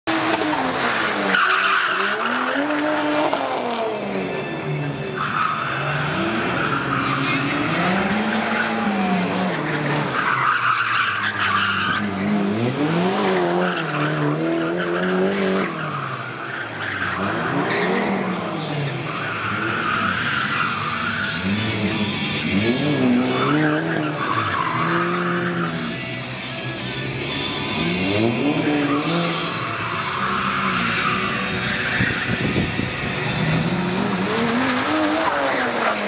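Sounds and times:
car engine revving: 0:00.0 - 0:36.0
tyres squealing and skidding: 0:00.1 - 0:36.0.

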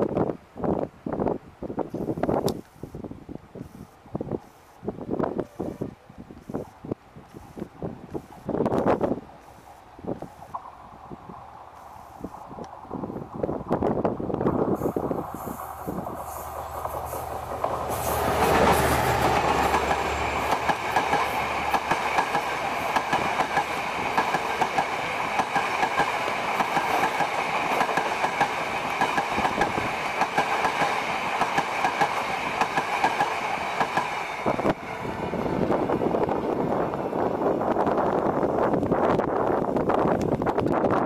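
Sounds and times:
diesel locomotive engine drone: 0:04.8 - 0:41.0
train wheels clickety-clack: 0:14.4 - 0:34.9.

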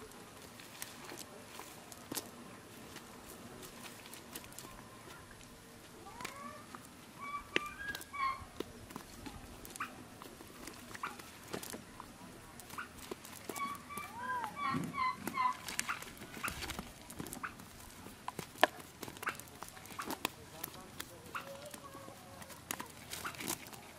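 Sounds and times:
fish flapping on grass: 0:00.0 - 0:07.0, 0:07.6 - 0:23.9
cast net clicks and rustles: 0:00.0 - 0:23.9
animal chirping: 0:06.1 - 0:08.5, 0:11.0 - 0:11.3, 0:12.7 - 0:16.6, 0:21.3 - 0:22.2.

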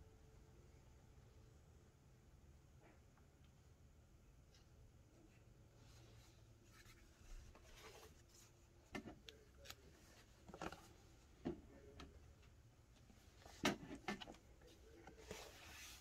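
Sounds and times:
soft rubbing: 0:05.8 - 0:08.9, 0:12.9 - 0:16.0.

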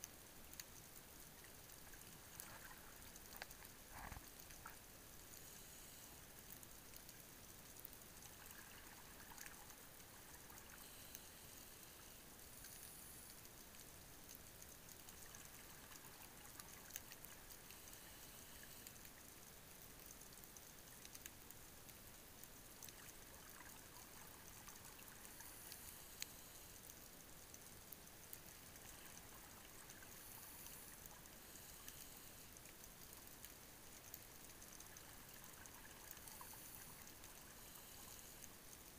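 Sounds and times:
faint clicks and crackles: 0:00.0 - 0:38.9
underwater hiss: 0:02.0 - 0:06.3, 0:10.4 - 0:13.4, 0:17.6 - 0:19.0, 0:24.8 - 0:26.9, 0:28.6 - 0:32.6, 0:35.0 - 0:38.6.

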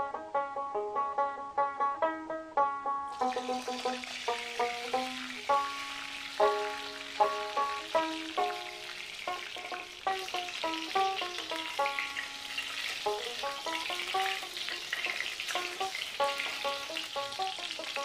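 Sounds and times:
vegetables sizzling in oil: 0:03.1 - 0:18.0.

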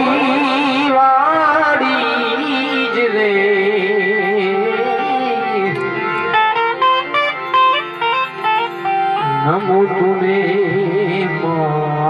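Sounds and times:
person singing folk song: 0:00.0 - 0:06.3
harmonium: 0:00.0 - 0:12.0.

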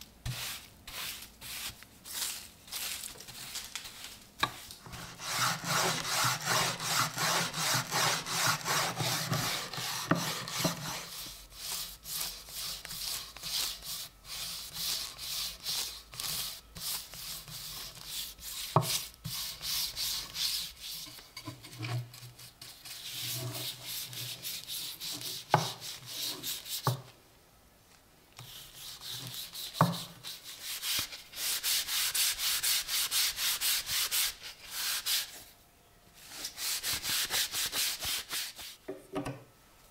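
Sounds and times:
brush rubbing on wood: 0:04.6 - 0:21.2, 0:22.4 - 0:26.8, 0:28.5 - 0:35.4, 0:36.2 - 0:38.8.

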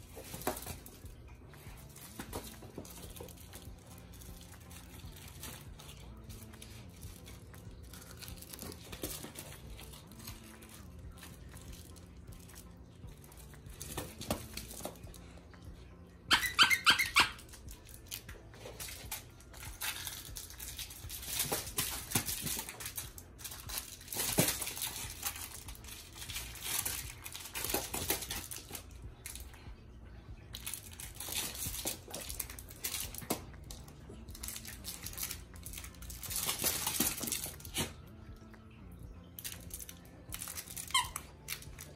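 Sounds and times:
toys rustling and crinkling: 0:00.0 - 0:38.1, 0:39.3 - 0:41.9
squeaky toy squeaking: 0:16.3 - 0:17.6, 0:40.4 - 0:41.8.

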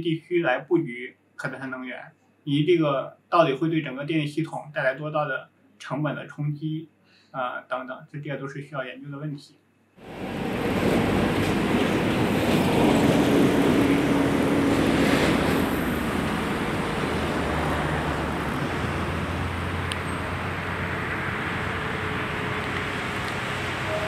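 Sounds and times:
traffic rumble: 0:10.0 - 0:24.0
vehicle passing: 0:10.0 - 0:24.0.

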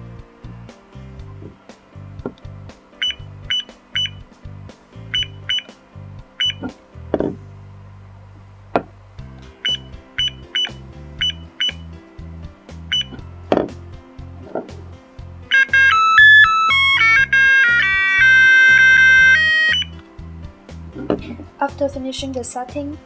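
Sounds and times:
background music with low beat: 0:00.0 - 0:23.0
short high alarm clock beeps: 0:03.0 - 0:04.2, 0:05.1 - 0:05.7, 0:06.4 - 0:06.6, 0:09.6 - 0:11.9, 0:12.9 - 0:13.2, 0:15.5 - 0:20.0.

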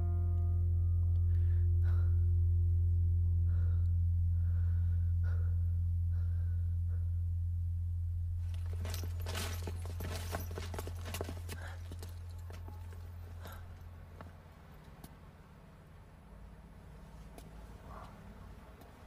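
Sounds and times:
low musical drone: 0:00.0 - 0:09.2
footsteps and shuffling: 0:08.4 - 0:14.4
faint short breaths: 0:11.3 - 0:12.2.

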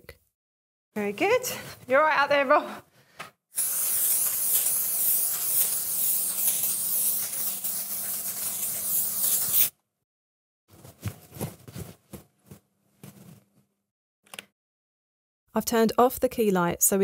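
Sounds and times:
aerosol can hissing: 0:03.6 - 0:09.7.

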